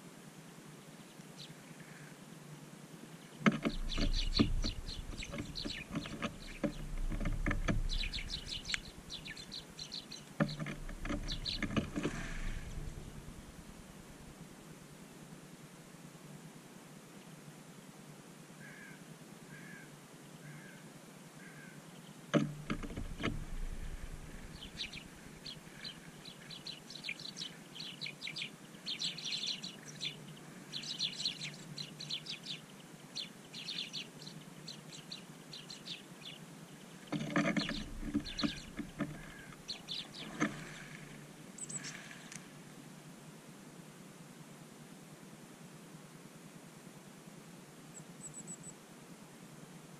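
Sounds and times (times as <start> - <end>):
songbirds chirping: 0.0 - 15.2, 19.5 - 43.1, 47.9 - 48.8.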